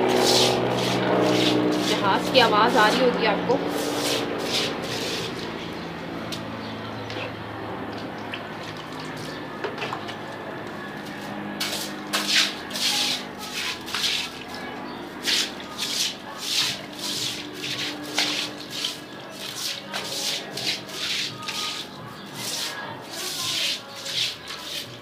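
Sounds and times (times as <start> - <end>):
broom scrubbing wet steps: 0.0 - 5.9, 11.0 - 25.0
water washing over stone stairs: 11.7 - 14.5, 15.2 - 21.8.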